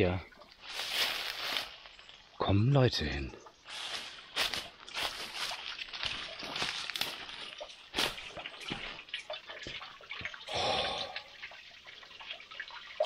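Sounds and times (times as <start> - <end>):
water dripping and trickling: 0.0 - 13.0
footsteps crunching on dry leaves: 0.6 - 2.2, 3.6 - 9.0.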